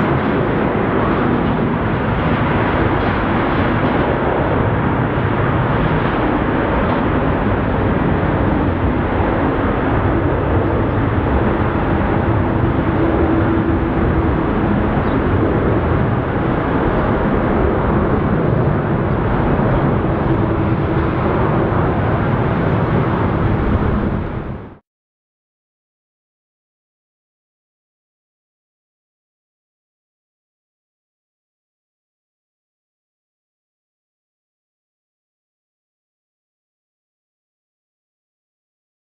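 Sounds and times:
loud jet engine noise: 0:00.0 - 0:24.8.

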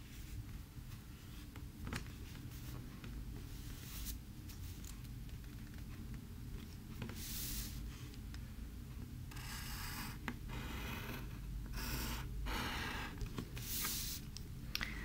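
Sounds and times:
pencil scratching on paper: 0:09.4 - 0:14.2.

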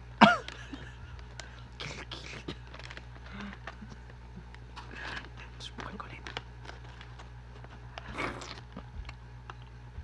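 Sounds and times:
person laughing: 0:00.2 - 0:01.3
snack crackling while eaten: 0:00.2 - 0:09.9.

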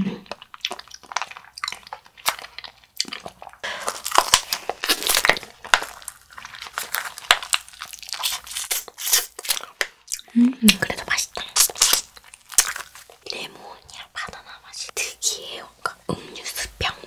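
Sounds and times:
plastic wrapper crinkling: 0:00.6 - 0:10.0, 0:10.7 - 0:14.6.

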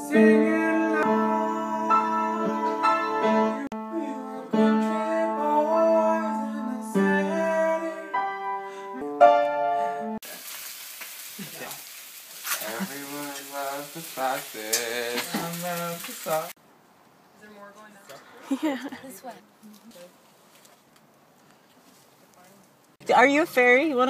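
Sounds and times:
upright piano chords: 0:00.0 - 0:10.2
egg sizzling in a frying pan: 0:10.2 - 0:16.6.

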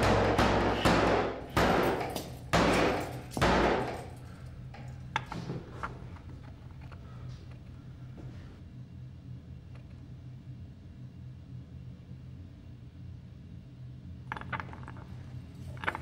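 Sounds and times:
heavy bangs with long echo: 0:00.0 - 0:04.2
low hum: 0:00.0 - 0:16.0.

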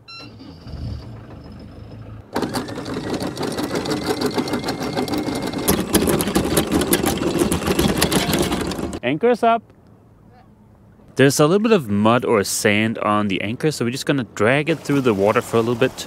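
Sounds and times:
windlass motor whine: 0:00.0 - 0:09.0
boat engine low rumble: 0:00.0 - 0:16.0
anchor chain rattling: 0:00.3 - 0:09.0.

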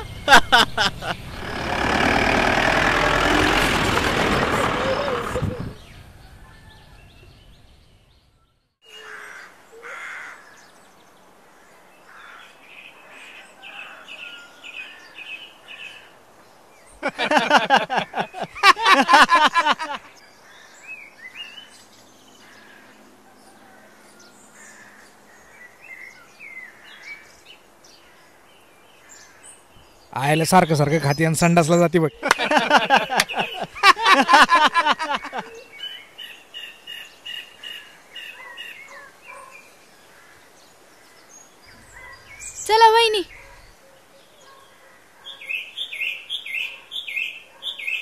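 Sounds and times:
vehicle engine: 0:00.0 - 0:06.3
birds chirping: 0:00.0 - 0:48.0
well pulley wheel creaking: 0:01.2 - 0:05.8
crows cawing: 0:08.9 - 0:10.6, 0:11.6 - 0:14.2, 0:24.6 - 0:25.5, 0:40.0 - 0:41.2.

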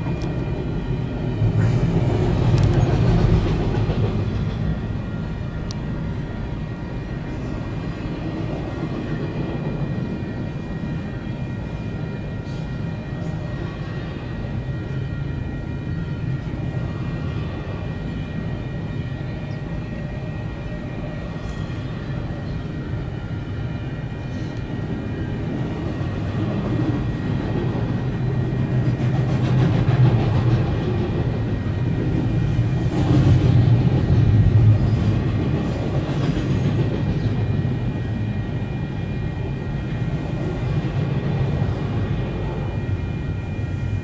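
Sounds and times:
train wheels rumbling on rail: 0:00.0 - 0:44.0
faint high whine: 0:04.5 - 0:28.9, 0:37.1 - 0:44.0.

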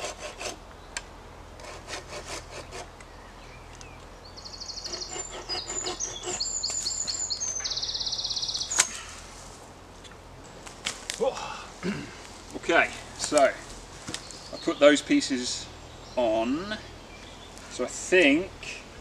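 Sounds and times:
songbird trilling song: 0:03.0 - 0:09.2, 0:14.1 - 0:17.8
wood sticks knocking and rustling: 0:10.0 - 0:11.3.

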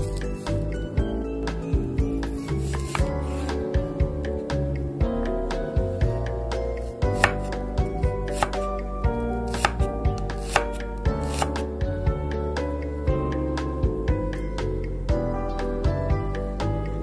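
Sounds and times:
soft background music: 0:00.0 - 0:17.0
knife chopping on cutting board: 0:02.7 - 0:03.1, 0:07.1 - 0:07.6, 0:08.2 - 0:08.7, 0:09.5 - 0:11.6.

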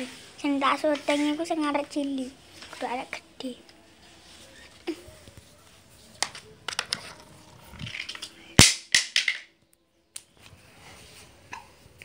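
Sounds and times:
broom brushing: 0:00.0 - 0:03.1, 0:03.9 - 0:04.8.

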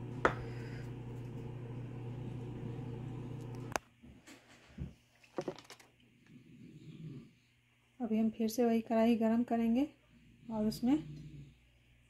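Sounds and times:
low machine hum: 0:00.0 - 0:03.8.

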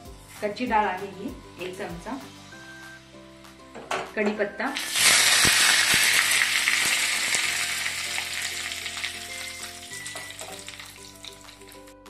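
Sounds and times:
leaves sizzling in hot oil: 0:04.8 - 0:11.9.

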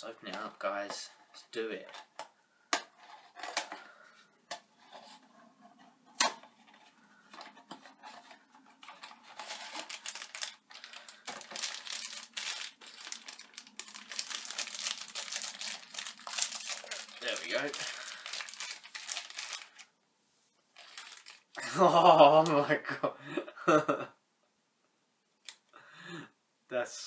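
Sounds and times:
plastic packaging crinkling: 0:07.2 - 0:19.9, 0:20.7 - 0:21.6.

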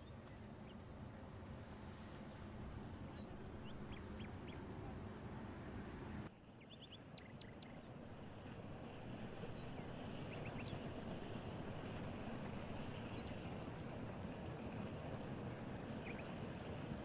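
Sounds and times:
small birds chirping: 0:03.1 - 0:05.2, 0:06.4 - 0:08.0, 0:09.5 - 0:10.8, 0:13.0 - 0:16.6.

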